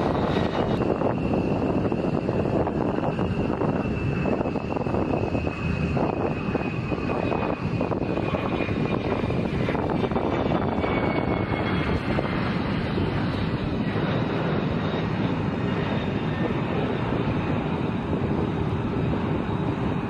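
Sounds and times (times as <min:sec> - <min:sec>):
jet engine roaring with high whine: 0:00.0 - 0:20.0.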